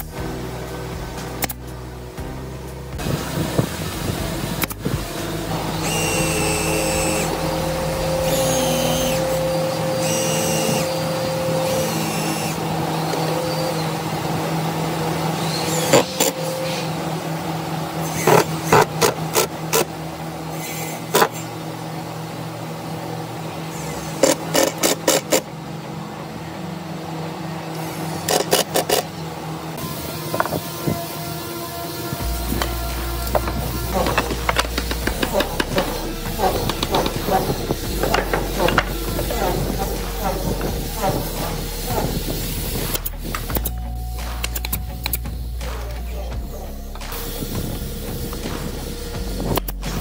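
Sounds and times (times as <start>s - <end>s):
power tool humming and whining: 0.0s - 50.0s.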